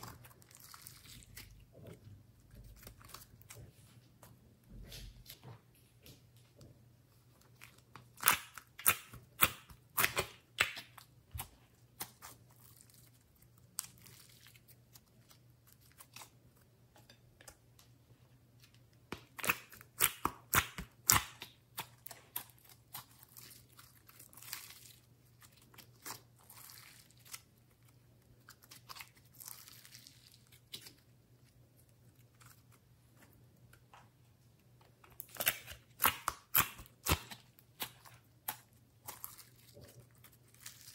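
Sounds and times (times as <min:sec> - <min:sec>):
slime clicking and crackling: 0:35.2 - 0:40.9.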